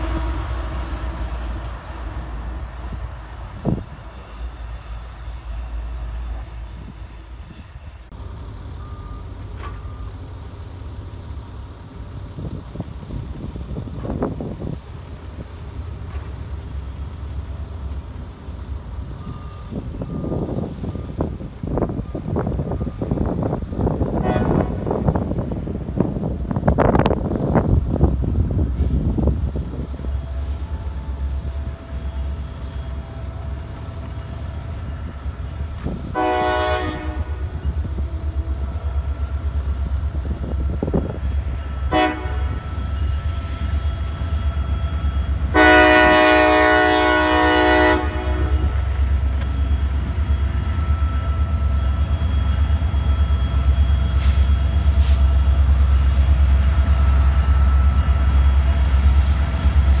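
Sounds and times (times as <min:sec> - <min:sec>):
locomotive horn blasts: 0:00.0 - 0:02.9, 0:24.2 - 0:25.0, 0:36.1 - 0:37.7, 0:41.6 - 0:43.8, 0:45.4 - 0:49.0
diesel locomotive rumble: 0:00.0 - 1:00.0.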